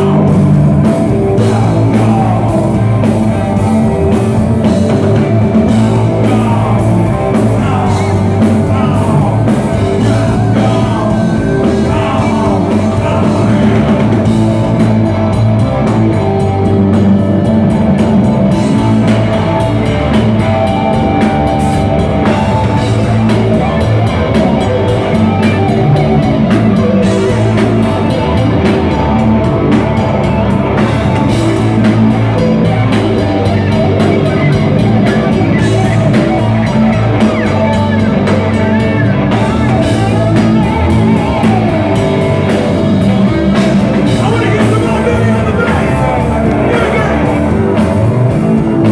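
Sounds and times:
man singing lead vocal: 0.0s - 3.7s, 5.5s - 14.5s, 44.0s - 47.9s
drum kit: 0.0s - 48.9s
electric guitar: 0.0s - 48.9s
keyboards: 0.0s - 48.9s.

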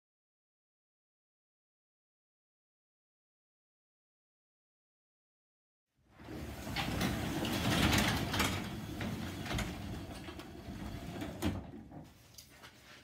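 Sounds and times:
garage door rolling open: 6.1s - 12.2s.

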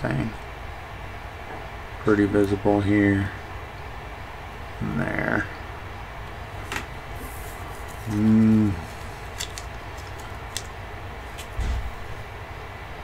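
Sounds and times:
man humming: 8.0s - 9.1s
card clicking in fingers: 8.9s - 11.5s.

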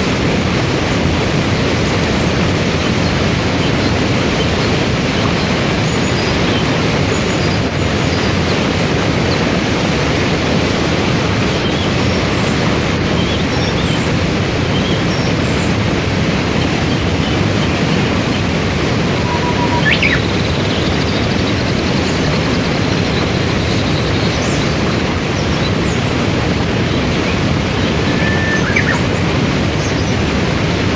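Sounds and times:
rushing water: 0.0s - 30.9s
bird chirps: 16.6s - 22.4s, 28.0s - 29.0s.

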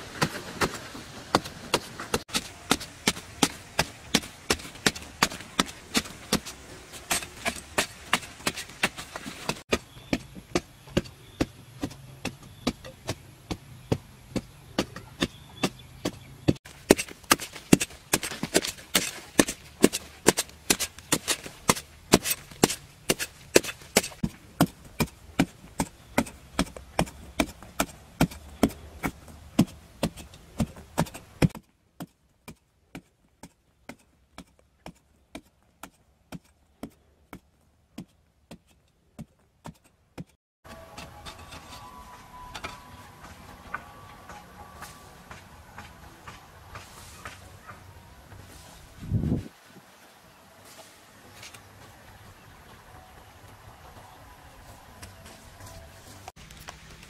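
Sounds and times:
soil scattering: 0.0s - 36.9s
hoe chopping hard earth: 0.1s - 37.4s.

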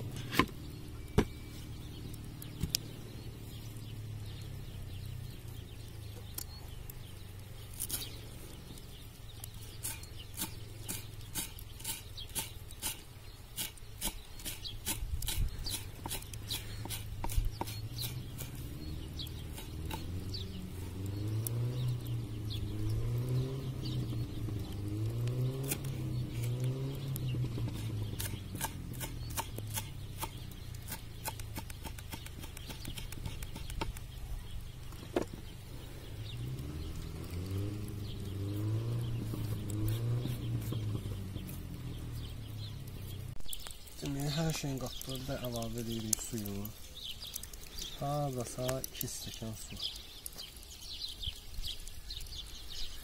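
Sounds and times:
knife chopping herbs on wood: 9.8s - 13.0s, 13.6s - 18.6s, 19.4s - 20.2s, 27.5s - 34.1s, 38.6s - 41.7s
low droning sound: 35.4s - 43.6s.

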